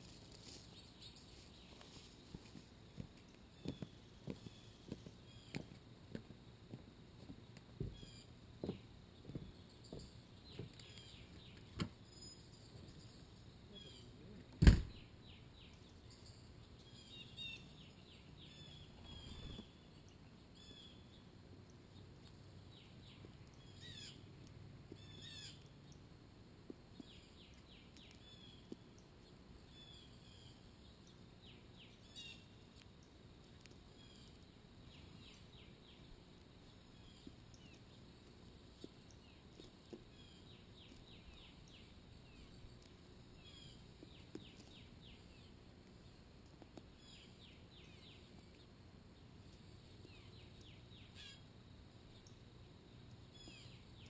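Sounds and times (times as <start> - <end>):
songbirds chirping: 0.0 - 54.0
sharp knock: 14.6 - 15.0.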